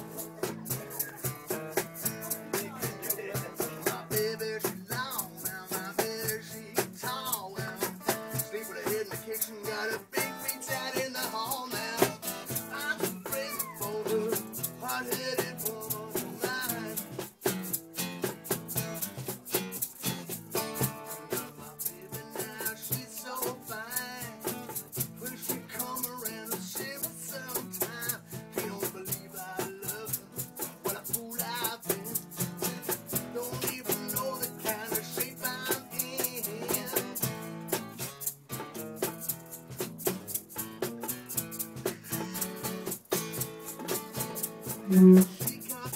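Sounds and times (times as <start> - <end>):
person singing melody: 0.0 - 17.0, 44.8 - 45.9
acoustic guitar strummed: 0.0 - 45.9
cajon: 0.0 - 45.9
egg shaker rattling: 0.0 - 45.9.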